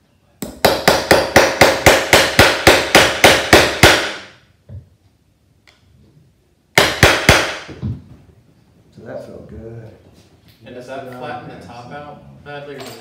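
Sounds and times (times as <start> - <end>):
hammer tapping on metal: 6.8 - 7.7.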